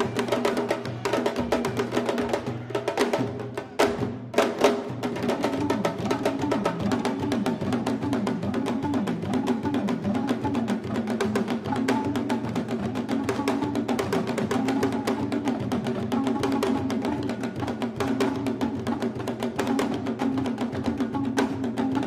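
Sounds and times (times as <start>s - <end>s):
hand drums playing fast rhythm: 0.0s - 22.0s.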